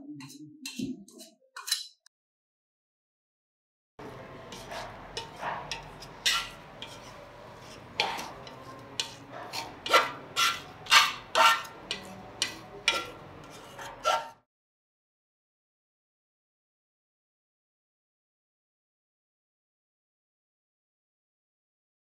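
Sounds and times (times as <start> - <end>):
metal scraper scraping paint off steel: 0.2 - 2.0, 4.0 - 14.4.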